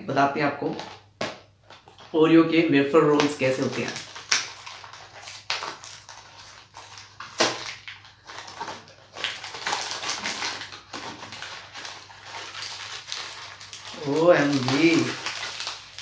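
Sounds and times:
plastic wrapper crinkling: 0.6s - 2.3s, 2.9s - 16.0s.

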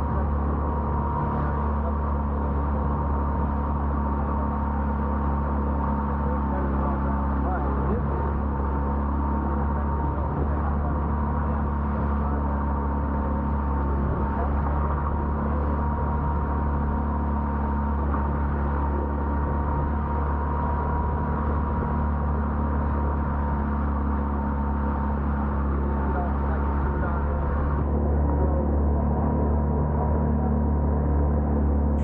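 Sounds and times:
boat engine drone: 0.0s - 32.0s.

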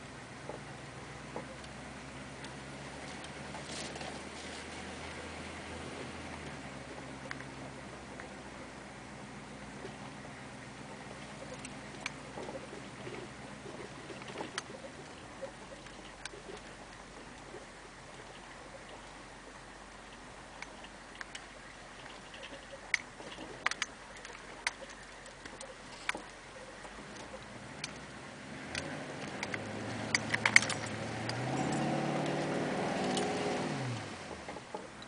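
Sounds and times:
diesel engine drone: 0.0s - 35.0s
clicks and rattles: 20.6s - 28.1s, 28.7s - 33.5s.

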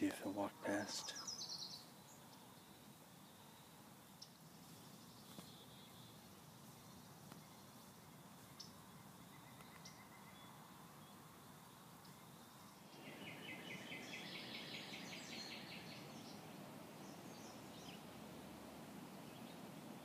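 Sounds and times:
songbird chattering trill: 0.5s - 2.5s, 12.1s - 18.0s.

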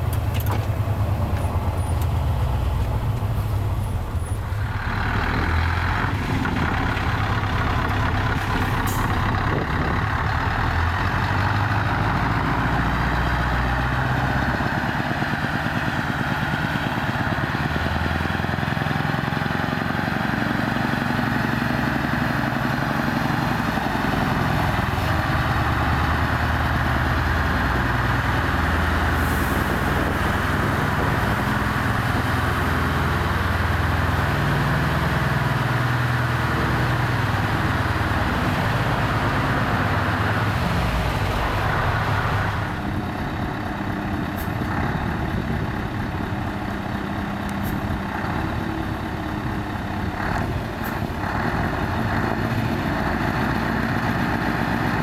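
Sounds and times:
truck engine rumbling: 0.0s - 55.0s.

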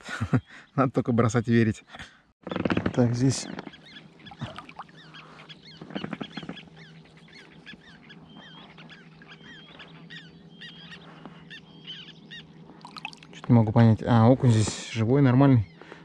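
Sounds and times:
birds chirping: 0.0s - 16.0s
faint steady hum: 3.7s - 16.0s.

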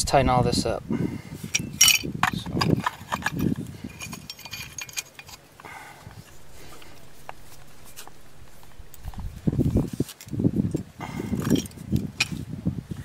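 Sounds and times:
handling noise: 2.5s - 10.0s.

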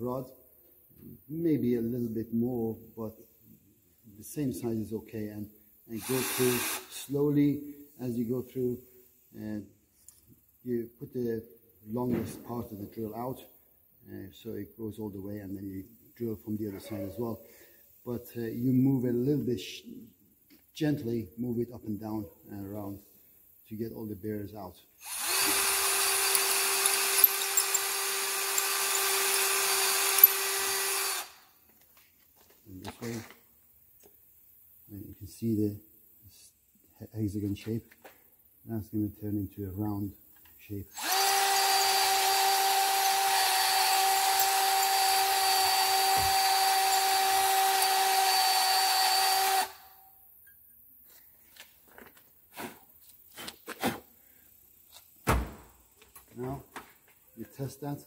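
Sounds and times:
rotary tool motor whine: 6.0s - 6.9s, 25.0s - 31.5s, 41.0s - 49.9s
drill bit ticking on metal: 25.1s - 31.3s, 41.0s - 49.8s.

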